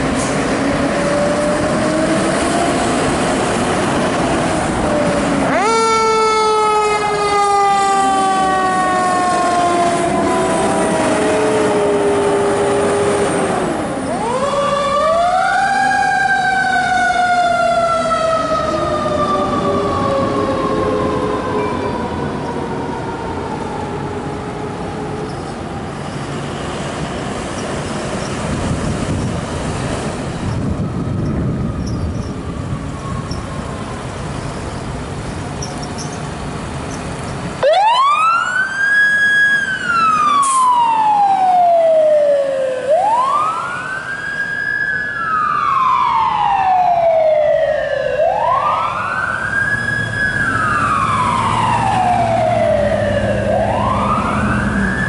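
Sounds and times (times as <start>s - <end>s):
electronic wail siren: 0.6s - 3.0s, 4.7s - 24.9s, 37.6s - 55.0s
heavy truck engine rumble: 24.2s - 37.7s
siren winding down: 37.6s - 55.0s.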